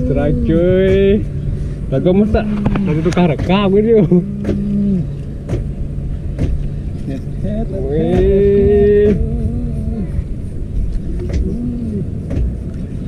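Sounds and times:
boat engine running: 0:00.0 - 0:13.0
person humming: 0:04.1 - 0:05.2, 0:08.1 - 0:10.3, 0:11.1 - 0:12.2.

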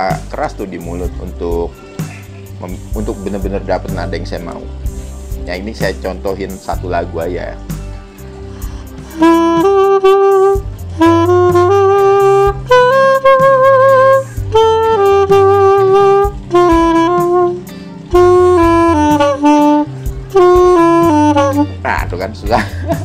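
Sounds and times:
reed wind instrument melody: 0:08.2 - 0:22.2
player breathing: 0:08.4 - 0:09.2.

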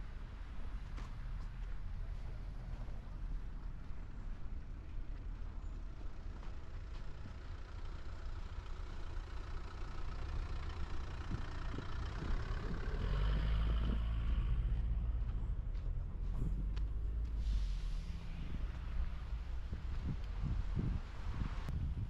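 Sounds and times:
vehicle driving by: 0:06.4 - 0:21.8.

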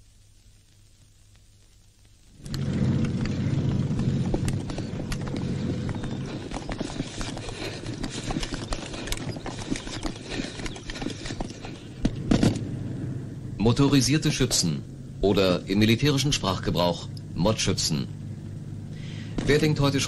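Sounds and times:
low steady hum: 0:00.0 - 0:20.0
equipment rattling: 0:02.4 - 0:12.7
running footfalls: 0:02.5 - 0:12.6.

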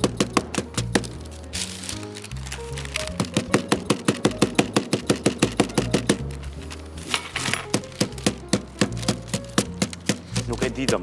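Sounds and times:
rapid taps pounding on wooden board: 0:03.2 - 0:06.2, 0:07.7 - 0:11.0.

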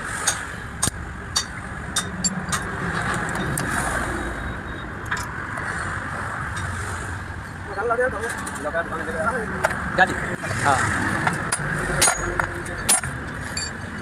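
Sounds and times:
steady vehicle noise: 0:00.0 - 0:14.0
sharp metallic clicks and taps: 0:00.2 - 0:03.7.

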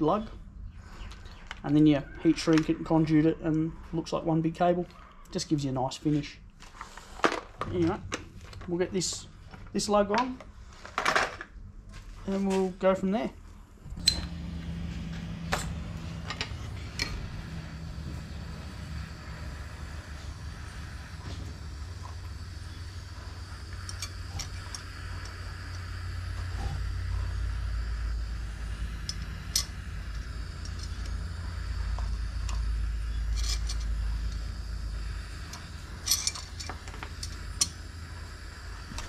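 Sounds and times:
low steady rumble: 0:13.3 - 0:39.0.

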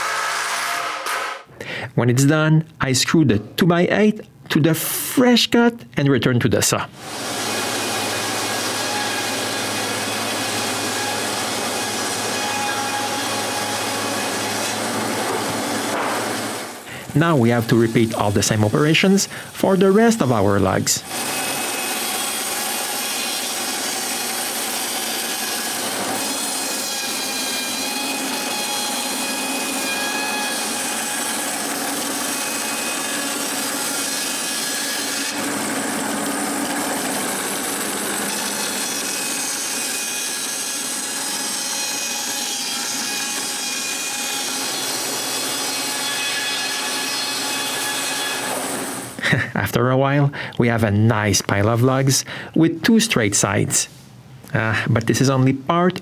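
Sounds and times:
bandsaw cutting a log: 0:00.0 - 0:01.4, 0:07.0 - 0:49.4.

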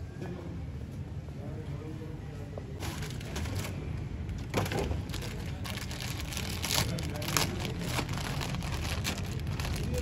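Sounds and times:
plastic wrapping crinkling: 0:05.0 - 0:10.0.

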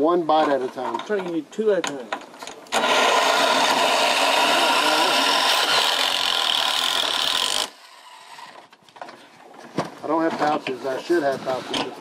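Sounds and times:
cordless drill whirring: 0:02.7 - 0:08.7.

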